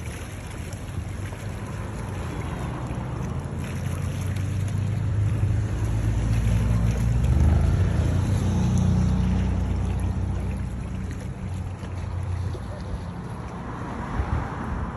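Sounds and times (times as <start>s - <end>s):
wind buffeting microphone: 9.2s - 14.9s.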